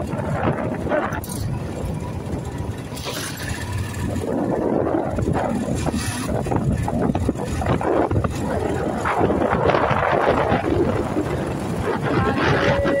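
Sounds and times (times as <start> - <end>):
vehicle rumble: 0.0 - 13.0
wind buffeting microphone: 0.0 - 13.0.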